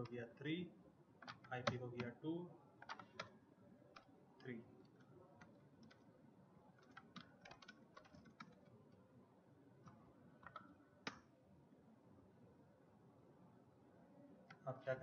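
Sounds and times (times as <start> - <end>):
faint keyboard keystrokes: 1.2 - 2.2, 2.8 - 6.0, 6.8 - 9.0, 9.8 - 11.3.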